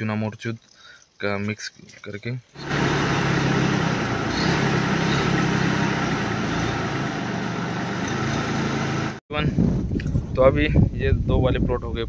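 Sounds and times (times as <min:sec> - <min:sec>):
tractor engine running: 0:02.6 - 0:09.2.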